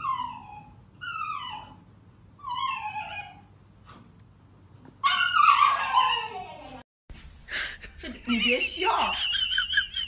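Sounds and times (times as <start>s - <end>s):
dog whining wails: 0.0s - 3.5s, 5.0s - 6.8s.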